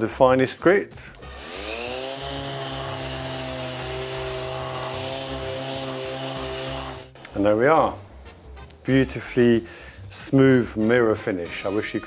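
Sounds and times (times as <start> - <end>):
dust extractor running: 1.2 - 7.2
orbit sander sanding wood: 1.3 - 7.2.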